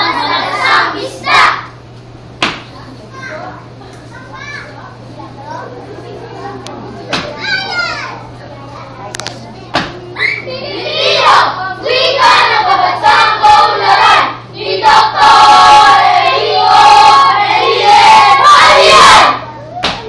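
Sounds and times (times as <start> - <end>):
children singing in unison: 10.8 - 19.3.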